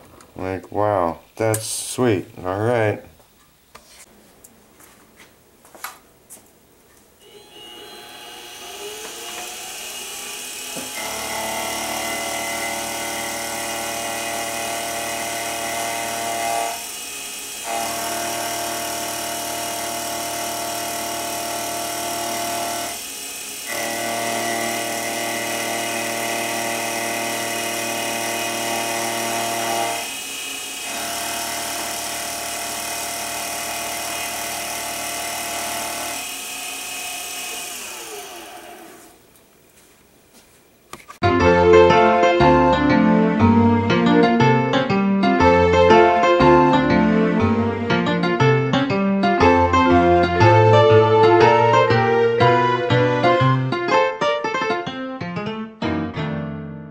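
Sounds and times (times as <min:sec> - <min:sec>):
mini mill cutting metal: 0:01.1 - 0:02.4, 0:07.2 - 0:39.3.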